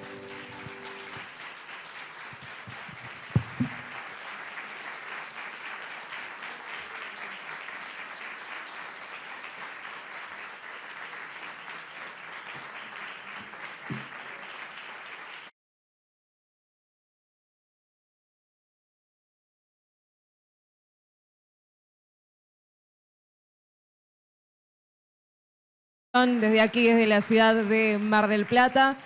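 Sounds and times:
audience applauding: 0.0s - 15.5s, 26.2s - 29.0s
loud knocks: 3.0s - 3.9s.

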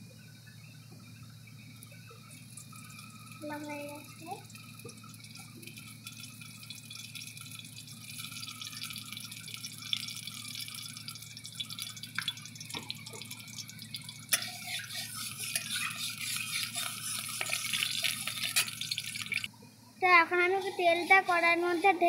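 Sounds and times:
cooking oil crackling in a pan: 1.6s - 19.5s, 20.5s - 22.0s
spatula moving in a pan: 14.2s - 19.5s, 20.3s - 22.0s.

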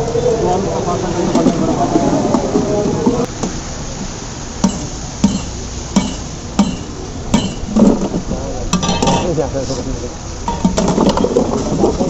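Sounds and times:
utensil striking hard surface: 4.6s - 8.0s, 8.7s - 9.4s.

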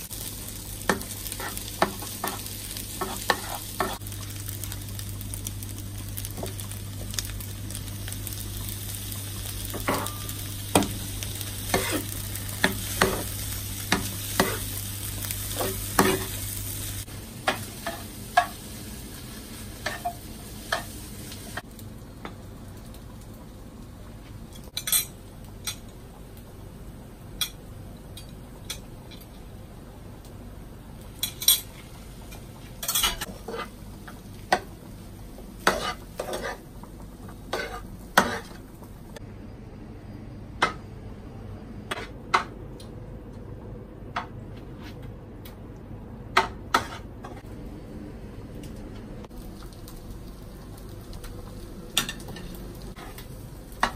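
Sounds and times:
spoon scraping frying pan: 0.9s - 4.0s, 11.7s - 14.7s, 35.6s - 36.6s, 37.5s - 38.6s.

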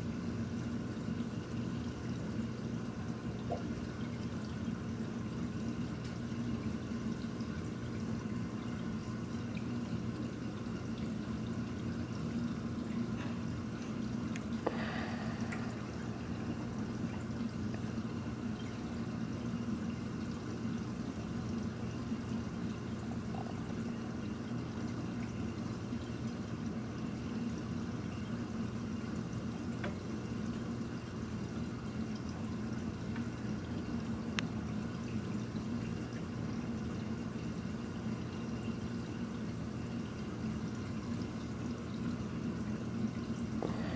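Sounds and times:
pump hum: 0.0s - 43.9s
trickling water: 0.0s - 43.9s
water drip: 3.1s - 4.9s, 5.5s - 26.8s.

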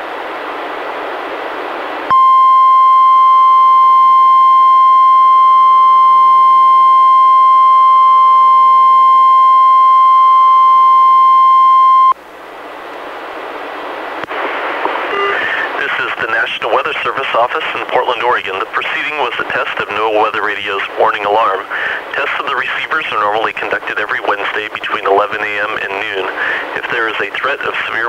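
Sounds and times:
radio hiss: 14.2s - 28.0s.

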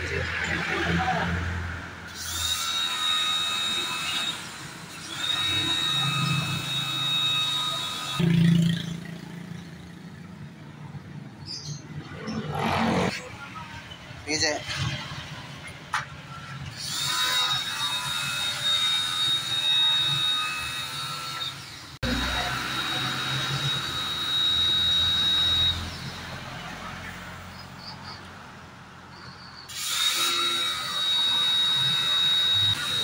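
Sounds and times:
pressure washer whining: 2.1s - 9.3s, 16.8s - 27.2s, 29.8s - 33.0s.

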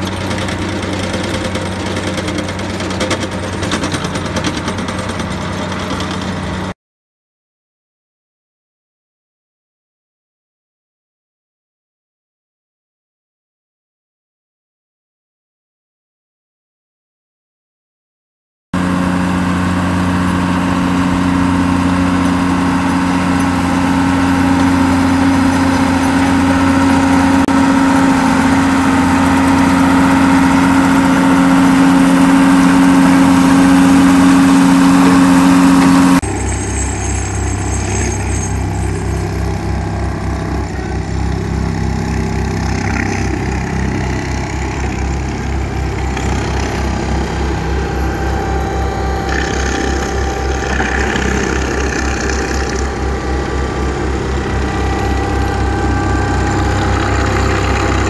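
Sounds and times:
pulsing rumble of vibrating attachment: 0.0s - 6.7s, 18.8s - 58.0s
engine running under load: 0.0s - 6.8s, 18.8s - 58.0s
mechanical clatter: 49.2s - 53.0s.

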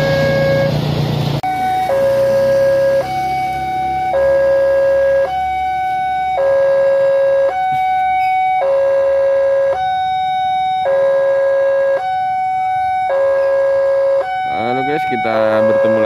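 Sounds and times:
level crossing two-tone alarm: 1.4s - 16.0s.

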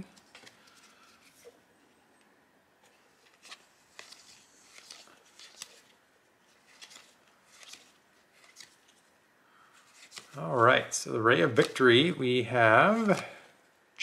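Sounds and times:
trading cards sliding: 2.8s - 9.1s, 9.7s - 10.4s, 12.8s - 13.3s.

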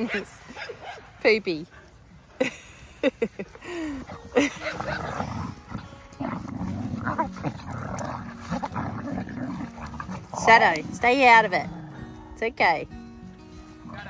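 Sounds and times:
dogs growling: 3.7s - 12.5s, 13.8s - 14.0s
dogs yapping: 4.1s - 11.2s.

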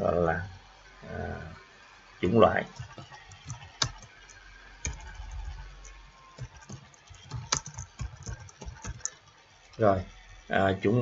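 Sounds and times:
computer keyboard typing: 2.6s - 9.8s.

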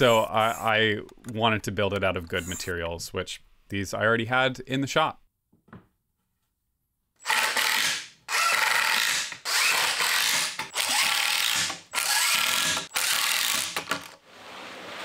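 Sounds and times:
impact driver driving screws: 7.2s - 14.2s.

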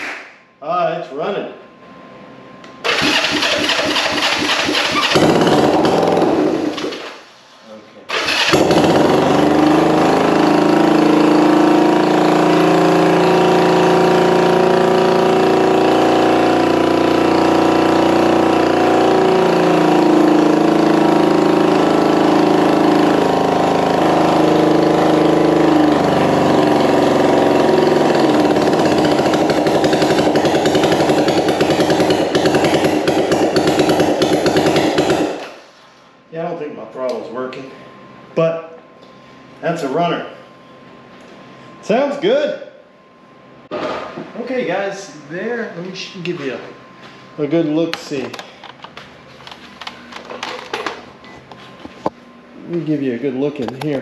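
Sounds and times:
motorcycle engine running: 2.9s - 7.0s, 8.1s - 35.4s.

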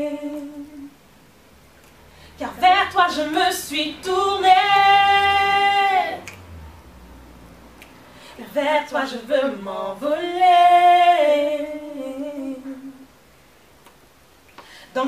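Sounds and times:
woman singing unaccompanied: 0.0s - 1.0s, 2.4s - 6.3s, 8.3s - 13.1s.

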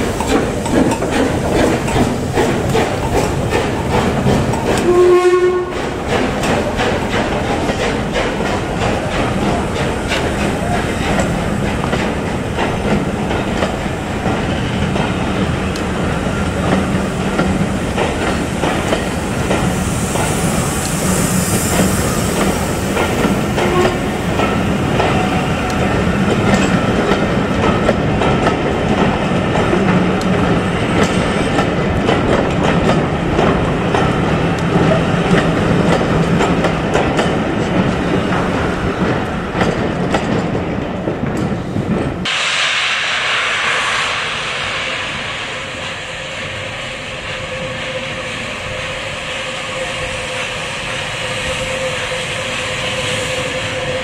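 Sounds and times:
train wheels clattering on rails: 0.0s - 54.0s
brief hiss: 42.3s - 49.6s.

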